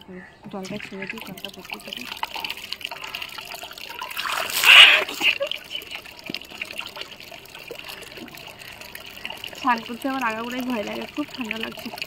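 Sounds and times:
water trickling: 0:00.1 - 0:12.0
water splash poured over body: 0:00.7 - 0:08.4.

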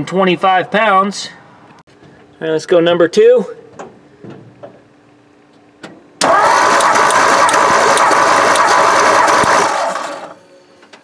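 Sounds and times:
engine cranking by starter motor: 0:06.2 - 0:10.4.

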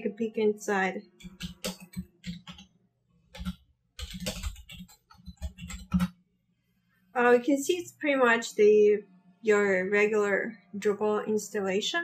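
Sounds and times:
typing on computer keyboard: 0:01.2 - 0:02.7, 0:03.3 - 0:06.2.

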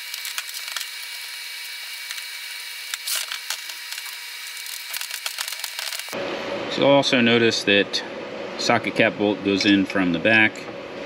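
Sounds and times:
metal parts clicking and scraping: 0:02.9 - 0:06.2.

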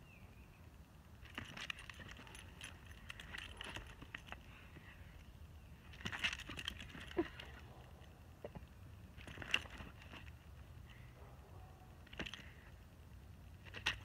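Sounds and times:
dog collar tags jingling: 0:01.2 - 0:08.4.

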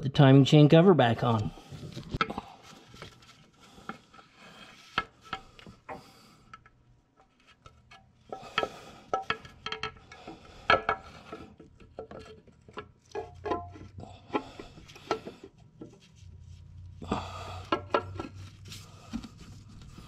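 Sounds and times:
metal cover clicking and knocking: 0:08.3 - 0:15.4.

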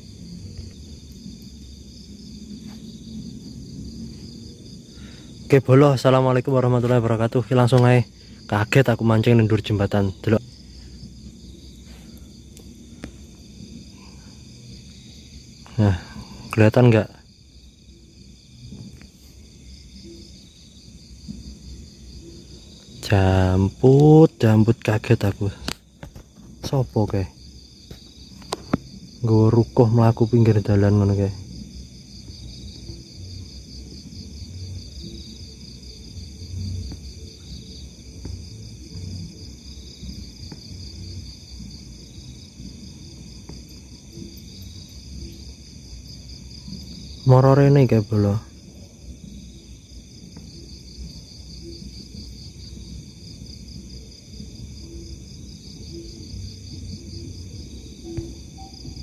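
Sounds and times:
low background rumble: 0:00.0 - 0:23.8
faint low rumble: 0:00.0 - 0:47.8
chorus of night insects: 0:00.0 - 0:59.0.

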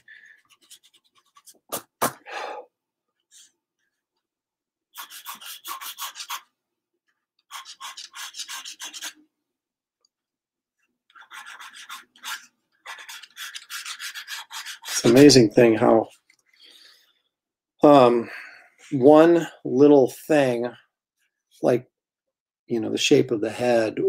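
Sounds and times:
pencil scratching on paper: 0:00.4 - 0:01.7, 0:04.9 - 0:06.5, 0:07.5 - 0:09.2, 0:11.1 - 0:15.4.

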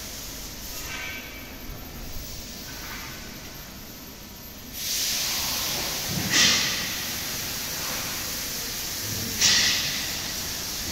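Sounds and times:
steady hissing noise: 0:00.0 - 0:10.9
short bursts of hiss: 0:04.8 - 0:10.9.

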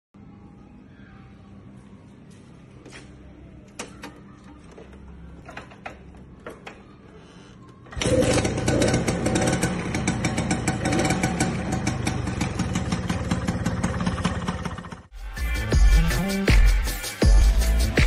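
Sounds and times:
scooter engine idling: 0:07.9 - 0:15.1.

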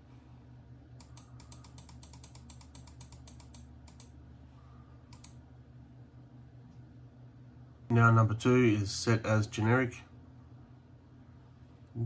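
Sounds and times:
faint low hum: 0:00.0 - 0:12.0
computer mouse clicks: 0:01.0 - 0:04.2, 0:05.1 - 0:05.4.

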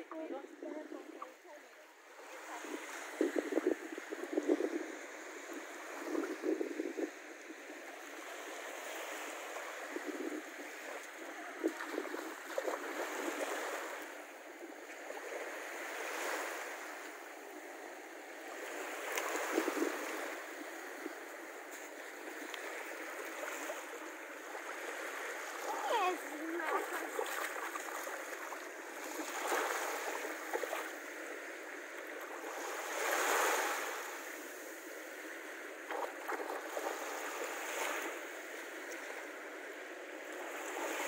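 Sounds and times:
small waves on sandy shore: 0:00.0 - 0:41.0
child splashing in water: 0:25.6 - 0:28.4.

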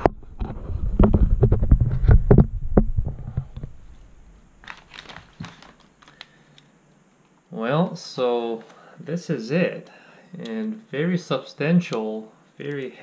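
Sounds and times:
handling thumps and knocks: 0:00.0 - 0:03.8
wrapping paper crinkling: 0:04.6 - 0:06.6.

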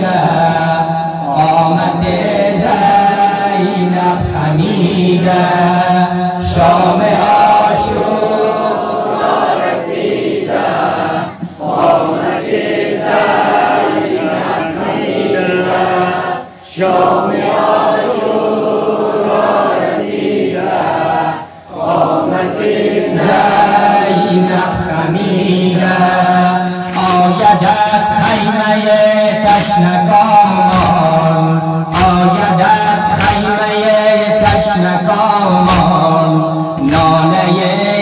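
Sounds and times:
man chanting into a microphone: 0:00.0 - 0:08.9, 0:23.0 - 0:38.0
crowd chanting in unison: 0:00.0 - 0:38.0.

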